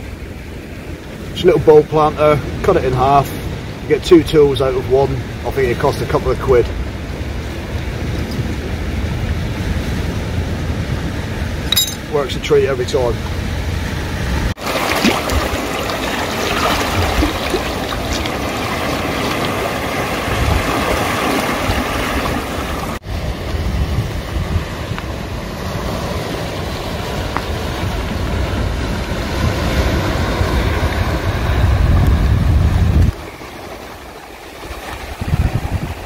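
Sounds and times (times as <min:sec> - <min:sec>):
wind buffeting microphone: 0:00.8 - 0:36.0
small waves breaking over rocks: 0:14.5 - 0:36.0.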